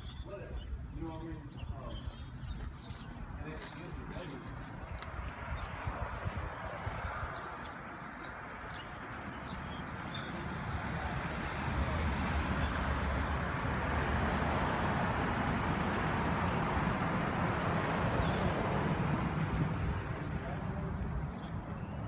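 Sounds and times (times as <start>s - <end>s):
bird chirps: 0.0s - 4.6s
cars passing: 3.3s - 22.0s.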